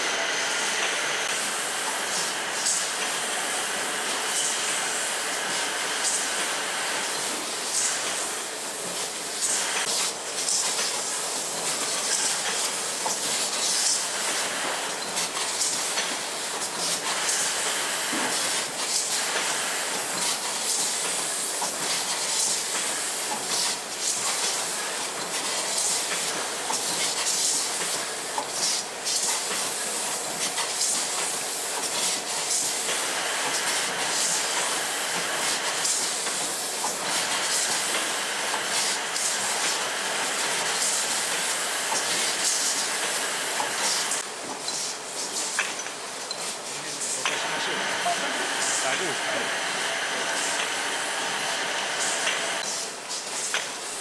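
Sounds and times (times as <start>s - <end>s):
machinery hissing: 0.0s - 26.4s, 28.6s - 45.6s, 46.6s - 54.0s.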